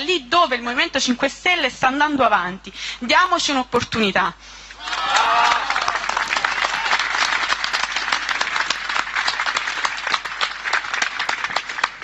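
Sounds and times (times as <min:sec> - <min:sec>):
crowd applauding: 0:04.8 - 0:12.0.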